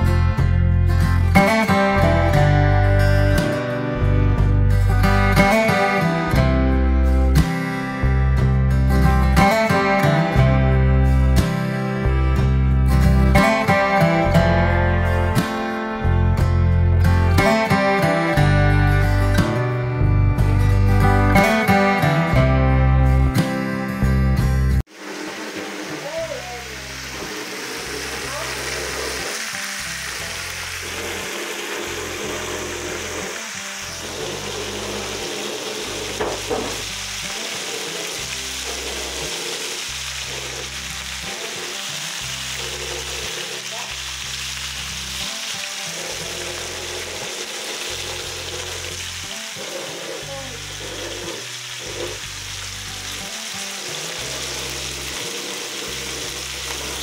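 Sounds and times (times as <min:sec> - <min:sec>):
background music: 0:00.0 - 0:24.8, 0:26.0 - 0:57.0
fish sizzling in frying pan: 0:24.9 - 0:57.0.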